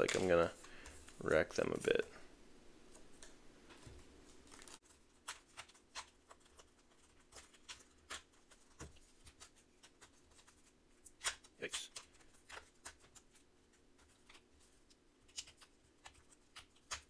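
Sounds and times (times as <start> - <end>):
cardboard cards clicking and rustling: 0.0 - 1.3, 3.0 - 13.4.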